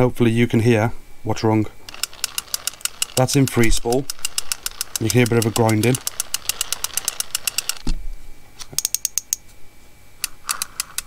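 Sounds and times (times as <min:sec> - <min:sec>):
fishing reel ticking grind: 0:01.9 - 0:07.8, 0:10.2 - 0:11.0.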